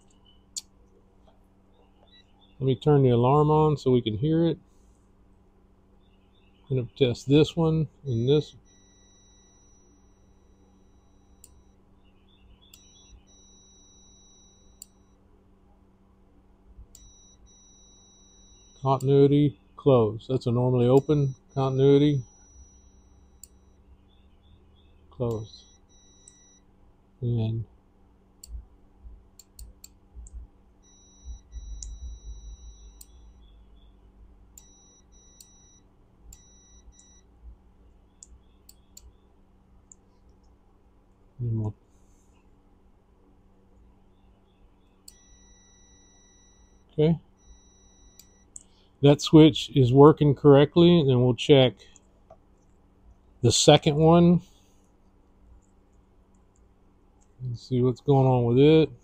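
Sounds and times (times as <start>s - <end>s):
multimeter high beep: 8.1s - 11.8s, 12.8s - 15.2s, 17.0s - 19.3s, 20.7s - 23.8s, 25.3s - 26.6s, 30.8s - 33.5s, 34.6s - 37.2s, 45.1s - 48.5s.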